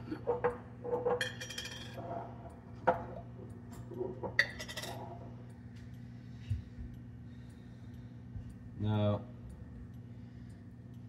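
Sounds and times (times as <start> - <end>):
kitchenware clinking and knocking: 0.0 - 2.0.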